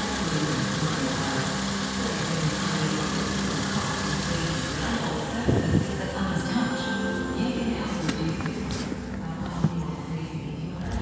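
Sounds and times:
car engine idling: 0:00.0 - 0:06.6.

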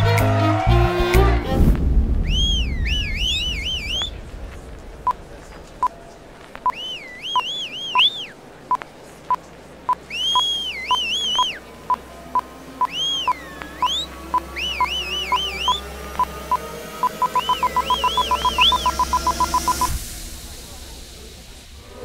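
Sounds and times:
low hum: 0:00.7 - 0:08.4, 0:09.7 - 0:22.0
warbling whistle-like chirps: 0:02.2 - 0:04.3, 0:06.6 - 0:08.4, 0:09.9 - 0:20.0
sound effect beeps: 0:06.6 - 0:08.3, 0:10.2 - 0:12.0, 0:12.8 - 0:20.0.

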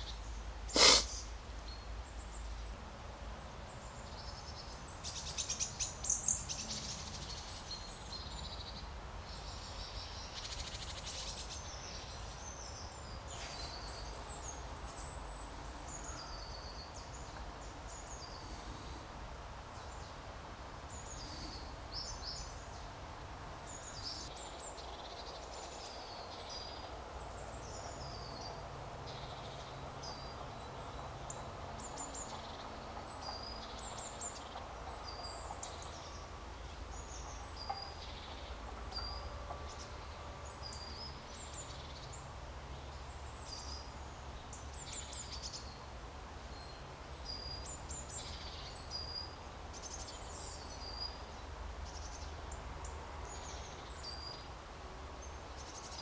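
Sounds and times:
low outdoor background rumble: 0:00.0 - 0:56.0
songbirds chirping and singing: 0:19.6 - 0:45.9.

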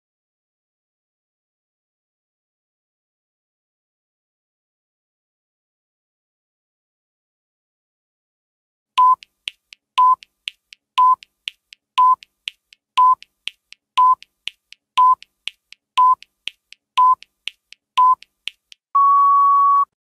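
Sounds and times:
short electronic beeps: 0:09.0 - 0:09.2, 0:10.0 - 0:10.2, 0:11.0 - 0:11.2, 0:12.0 - 0:12.2, 0:13.0 - 0:13.2, 0:14.0 - 0:14.2, 0:15.0 - 0:15.2, 0:16.0 - 0:16.2, 0:17.0 - 0:17.2, 0:18.0 - 0:18.2, 0:19.0 - 0:20.0
faint ticks: 0:09.0 - 0:18.8
longer higher beep: 0:19.0 - 0:20.0.

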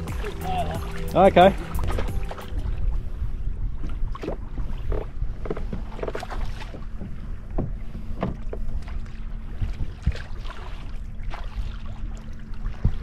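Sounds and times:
wind buffeting microphone: 0:00.0 - 0:11.8
water slapping against kayak hull: 0:03.8 - 0:11.9.

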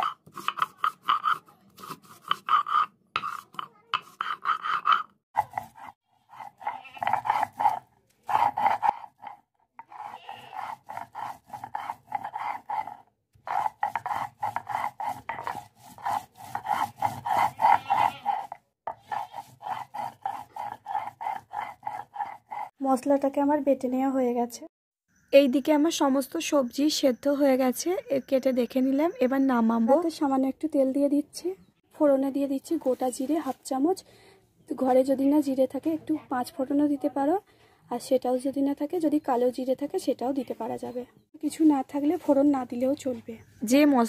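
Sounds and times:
grinding stone rubbing on slab: 0:00.0 - 0:22.8.

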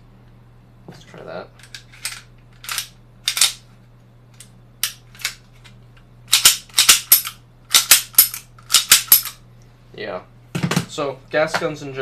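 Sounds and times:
pistol slide metallic clacks: 0:01.6 - 0:03.6.

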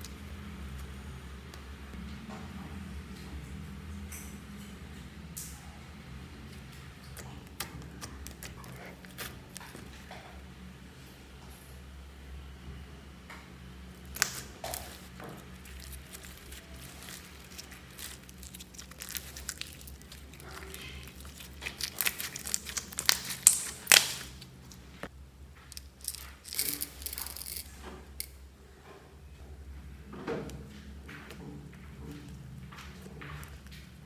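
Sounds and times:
slime squeezed clicking and popping: 0:14.1 - 0:15.0, 0:17.0 - 0:24.4.

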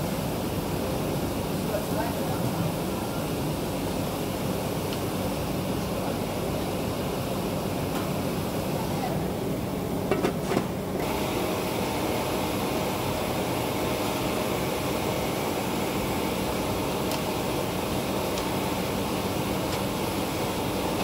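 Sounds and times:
broth boiling in stockpots: 0:00.0 - 0:21.0.

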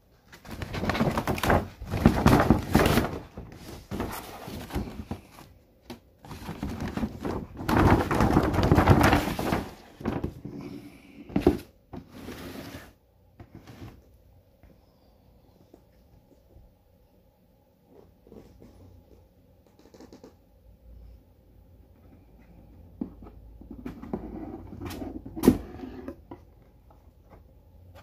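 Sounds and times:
paper bag rustling: 0:00.2 - 0:05.6, 0:06.2 - 0:10.7.

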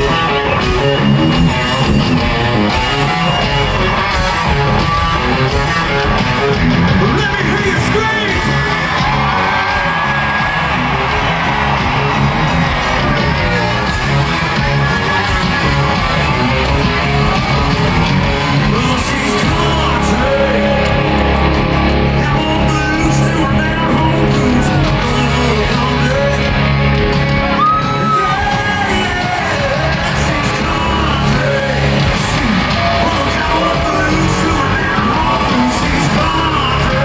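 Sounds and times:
country-rock band playing: 0:00.0 - 0:37.0
crowd yelling: 0:00.0 - 0:37.0
person singing: 0:18.5 - 0:26.8, 0:27.5 - 0:37.0.

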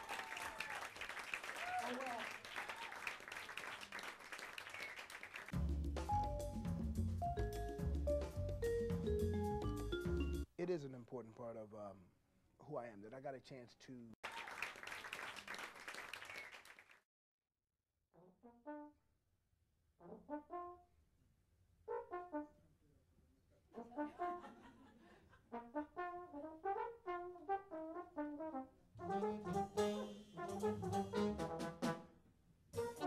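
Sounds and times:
applause: 0:00.0 - 0:05.6, 0:14.2 - 0:17.0
drums: 0:05.5 - 0:10.5, 0:29.3 - 0:32.1, 0:32.7 - 0:33.0
jazz trombone solo: 0:25.5 - 0:32.1, 0:32.8 - 0:33.0.

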